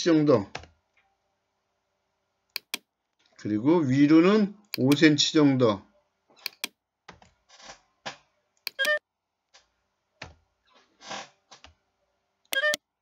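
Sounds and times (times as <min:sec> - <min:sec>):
keyboard typing: 0:02.6 - 0:02.8, 0:04.8 - 0:05.0, 0:06.5 - 0:06.7, 0:08.7 - 0:09.0, 0:12.6 - 0:12.8
mouse clicks: 0:02.6 - 0:02.8, 0:04.7 - 0:05.0, 0:06.4 - 0:06.7
computer beep: 0:08.7 - 0:09.0, 0:12.6 - 0:12.8.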